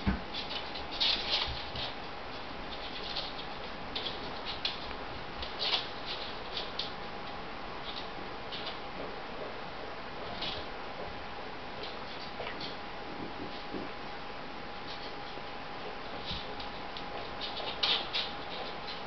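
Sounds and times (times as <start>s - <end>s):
faint steady hum: 0.0s - 19.0s
dog claws scratching: 0.3s - 7.0s, 16.1s - 19.0s.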